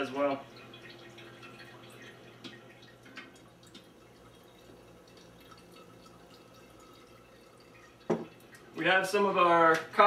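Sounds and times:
coffee dripping through filter: 0.0 - 10.0.

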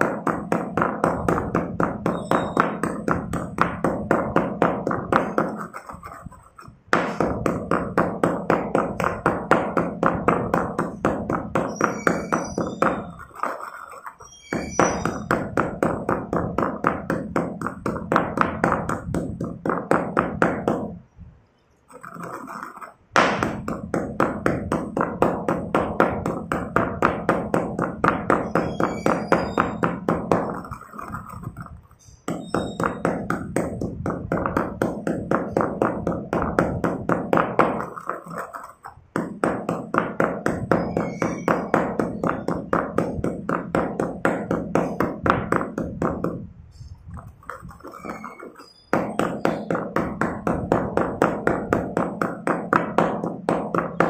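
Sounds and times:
stone pestle grinding in mortar: 0.0 - 21.0, 21.9 - 46.5, 47.1 - 54.0.

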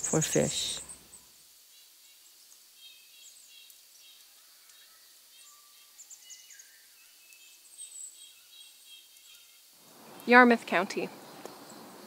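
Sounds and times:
birds chirping and calling: 0.0 - 1.2.

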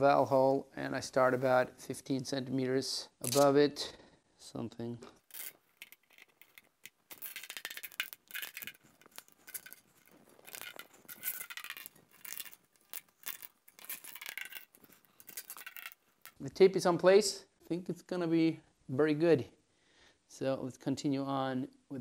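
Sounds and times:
tape crackling and rubbing: 5.2 - 16.4.

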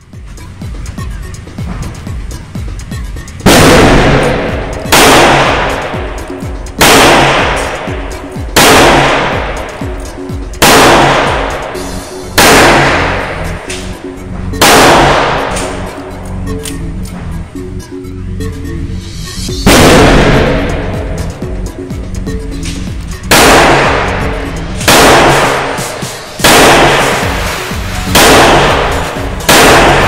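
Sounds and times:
background music: 0.0 - 30.0
revolver shots echoing indoors: 3.4 - 16.8, 19.6 - 21.4, 22.5 - 30.0.

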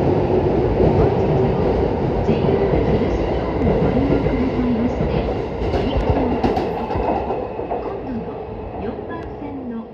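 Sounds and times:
electric train departing: 0.0 - 9.9.

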